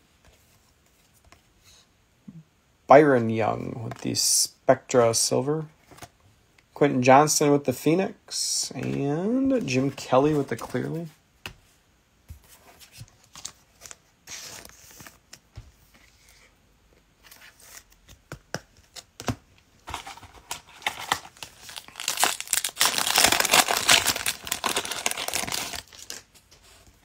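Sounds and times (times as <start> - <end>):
foil wrapper crinkling and tearing: 20.1 - 26.3.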